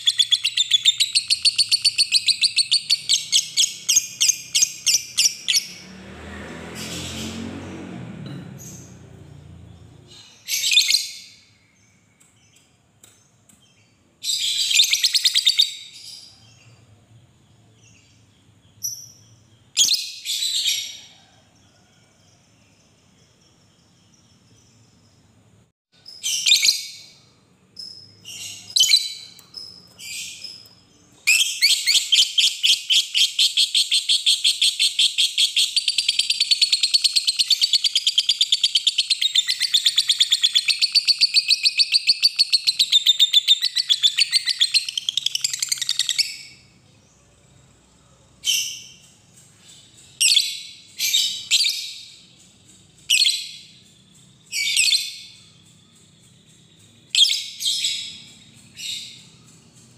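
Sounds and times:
lovebird chirping and trilling: 0.0s - 5.9s, 9.7s - 12.6s, 13.7s - 16.8s, 17.8s - 21.0s, 26.0s - 27.2s, 27.8s - 46.7s, 48.4s - 52.2s, 52.8s - 59.9s.

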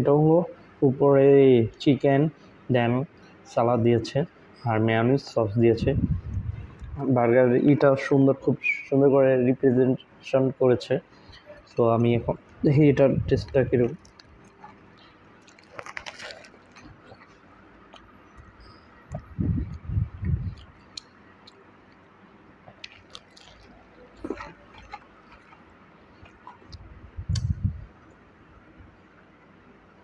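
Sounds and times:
dull low thumps: 5.8s - 7.0s, 19.1s - 20.6s
crunch: 11.3s - 27.5s
person biting and chewing: 13.5s - 22.0s, 22.6s - 27.6s.

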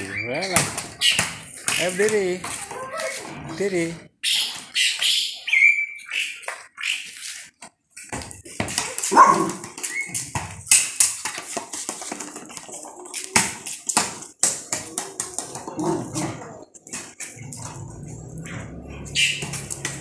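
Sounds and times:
dog barking: 9.1s - 9.6s.

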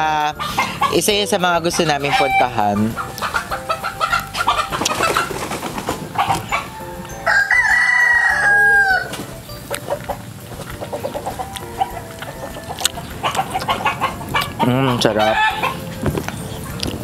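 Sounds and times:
chickens clucking: 0.0s - 17.0s
rooster crowing: 7.2s - 9.2s, 13.2s - 15.8s
wet chewing and sucking clicks: 9.1s - 15.0s, 15.6s - 17.0s.

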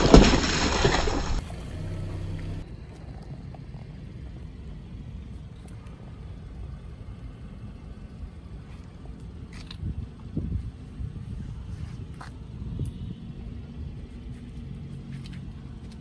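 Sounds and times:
tyre crushing watermelon: 0.0s - 1.4s
low steady rumble: 0.0s - 14.8s.

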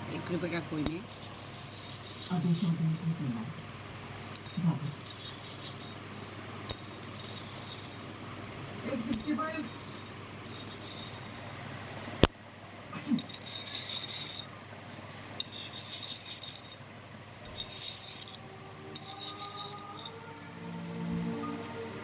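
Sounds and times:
coin click: 0.8s - 3.0s, 4.4s - 6.0s, 6.7s - 8.0s, 9.2s - 11.5s, 13.2s - 14.5s, 15.4s - 16.8s, 17.5s - 18.4s, 19.0s - 20.1s
metallic rattling of coin: 0.8s - 3.0s, 4.4s - 6.0s, 6.7s - 8.1s, 9.1s - 11.6s, 13.2s - 14.5s, 15.4s - 16.8s, 17.5s - 18.4s, 19.0s - 20.1s.

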